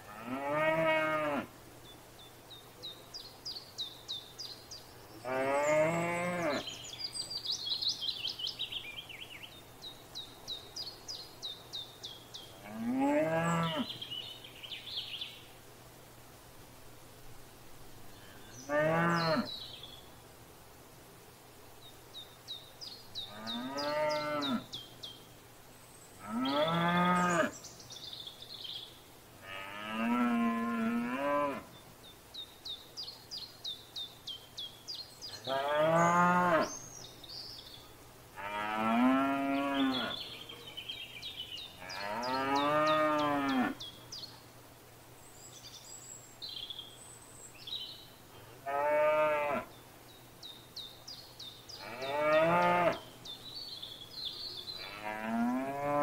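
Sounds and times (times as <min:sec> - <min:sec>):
cows mooing: 0:00.1 - 0:01.4, 0:38.4 - 0:40.2, 0:48.7 - 0:49.6, 0:51.8 - 0:53.0
small bird singing: 0:01.8 - 0:15.5, 0:18.1 - 0:20.2, 0:21.8 - 0:29.0, 0:31.7 - 0:44.6, 0:45.2 - 0:48.4, 0:49.2 - 0:56.0.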